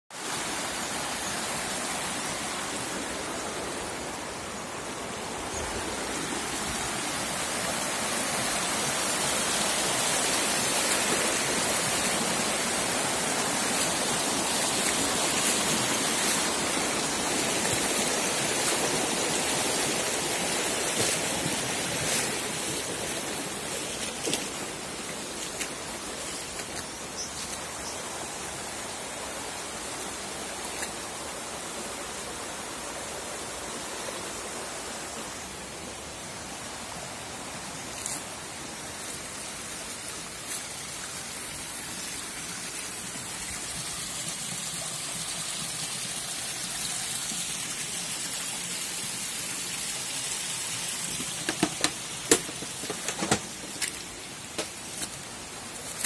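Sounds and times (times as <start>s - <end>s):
stream rushing over rocks: 0.1s - 56.0s
small water splashes: 9.6s - 27.6s.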